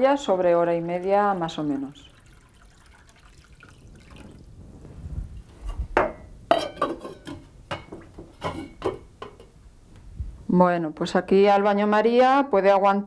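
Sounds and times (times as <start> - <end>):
water pouring into metal pot: 0.0 - 4.5
glass clinking against metal pot: 6.0 - 9.5.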